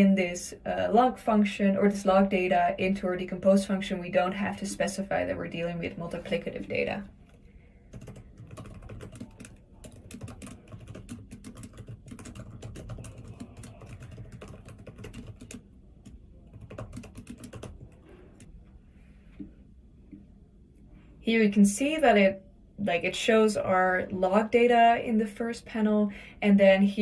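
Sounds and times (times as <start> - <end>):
typing on computer keyboard: 7.9 - 18.5.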